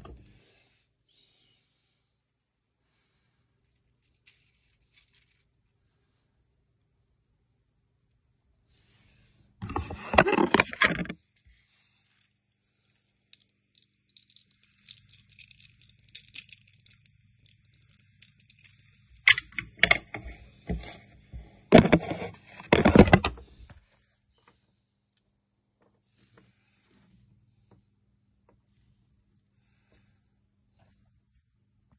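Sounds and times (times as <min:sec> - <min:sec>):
stone beads clacking together: 0:13.1 - 0:20.1.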